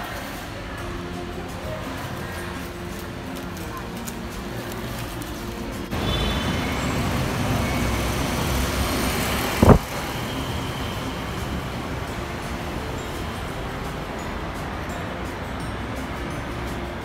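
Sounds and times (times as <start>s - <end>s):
airport terminal rumble: 0.0s - 17.0s.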